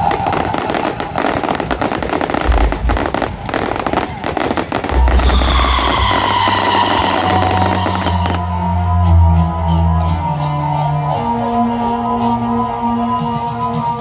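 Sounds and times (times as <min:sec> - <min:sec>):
fireworks booms: 0:00.0 - 0:08.4
fireworks crackling: 0:00.0 - 0:08.4.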